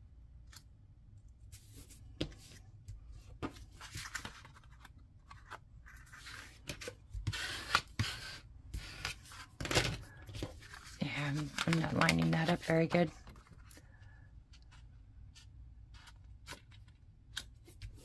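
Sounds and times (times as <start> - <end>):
cardstock rustling and scraping: 3.3 - 13.8.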